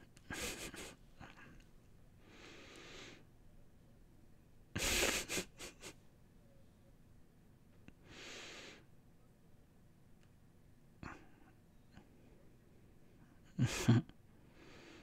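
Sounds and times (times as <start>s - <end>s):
man's breathy laugh: 0.2s - 1.6s, 4.8s - 6.0s, 13.5s - 14.1s.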